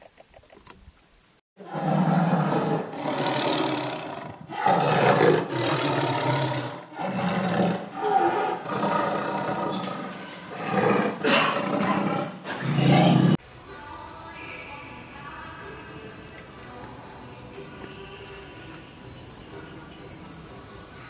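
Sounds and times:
tiger roaring: 0:01.6 - 0:13.4.

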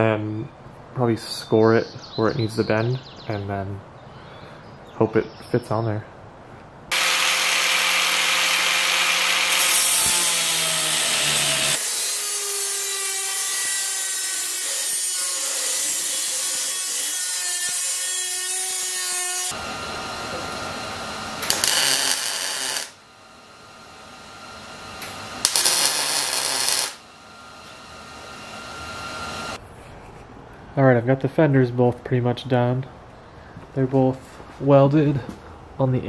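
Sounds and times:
angle grinder cutting steel: 0:06.9 - 0:23.0, 0:23.6 - 0:29.6.

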